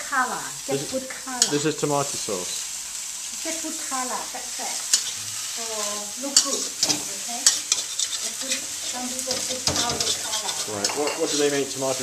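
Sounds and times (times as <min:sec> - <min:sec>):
noodles sizzling in wok: 0:00.0 - 0:12.0
spoon scraping wok: 0:01.4 - 0:01.8, 0:04.4 - 0:12.0.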